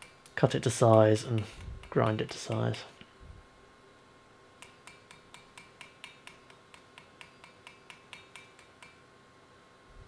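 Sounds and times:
small hammer tapping metal: 0.0 - 2.8, 4.6 - 9.0.

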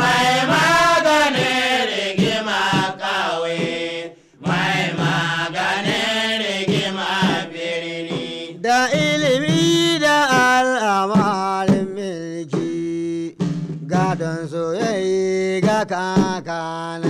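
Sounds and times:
man chanting melodically: 5.7 - 17.0.

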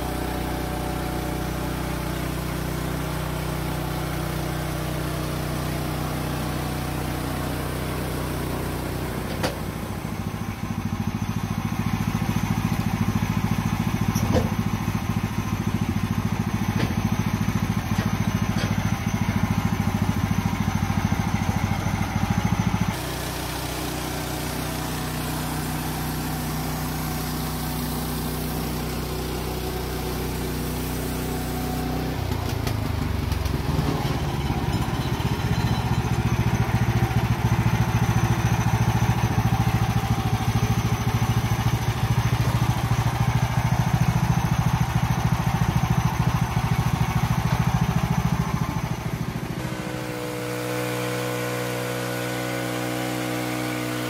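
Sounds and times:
sawmill engine running: 0.0 - 54.0.

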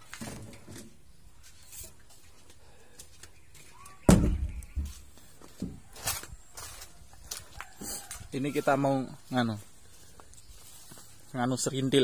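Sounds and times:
heavy thump: 4.1 - 4.6.

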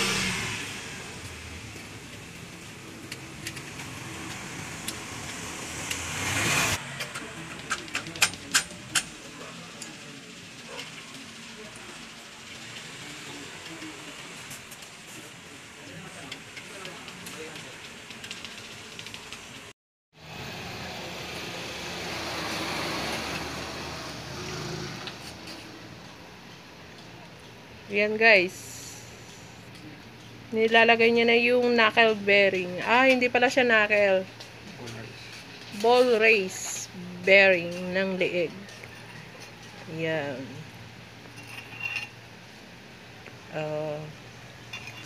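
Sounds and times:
vehicle passing: 0.0 - 10.4, 20.2 - 26.4.

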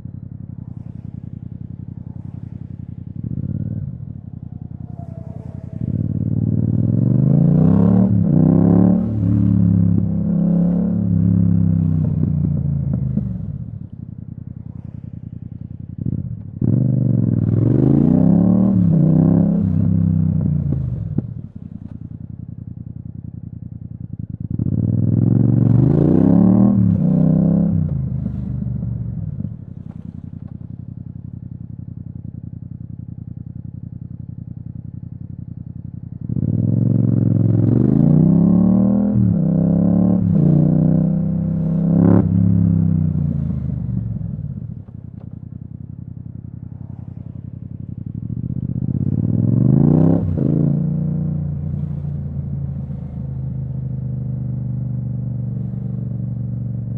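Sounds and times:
motorcycle engine idling: 0.0 - 7.3, 20.5 - 25.5, 28.0 - 37.4, 42.6 - 49.6, 51.3 - 56.9
motorcycle engine revving and upshifting: 0.0 - 13.7, 24.4 - 30.6, 36.2 - 45.3, 46.5 - 56.6.

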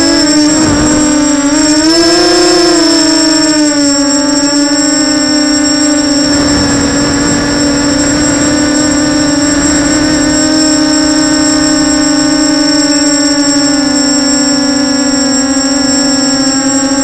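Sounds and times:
drone motors whining: 0.0 - 17.0
wind noise rush: 0.1 - 2.9, 5.6 - 14.1.

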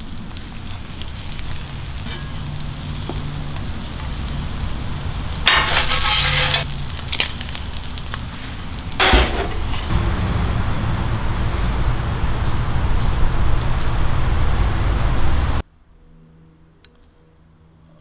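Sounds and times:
low rumble with hiss: 0.0 - 15.9
high pulsing buzz: 8.9 - 17.5.

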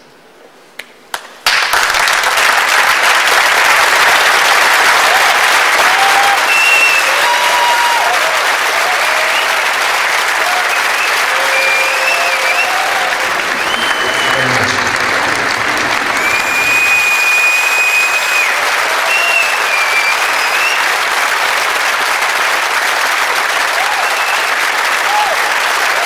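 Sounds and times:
audience clapping: 1.1 - 26.0
short cheers: 4.8 - 21.0, 23.6 - 26.0.

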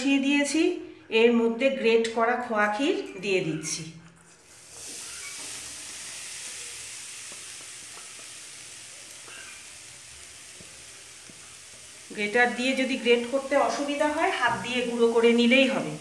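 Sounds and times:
food sizzling in hot pan: 4.4 - 16.0.

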